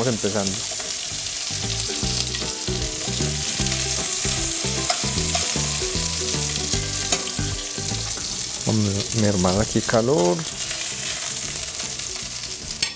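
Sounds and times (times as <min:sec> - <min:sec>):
oil sizzling in frying pan: 0:00.0 - 0:12.9.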